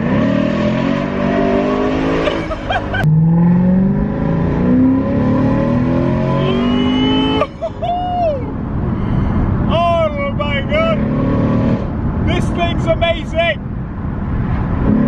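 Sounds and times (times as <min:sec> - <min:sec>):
car engine accelerating hard: 0:00.0 - 0:07.5, 0:10.7 - 0:12.0.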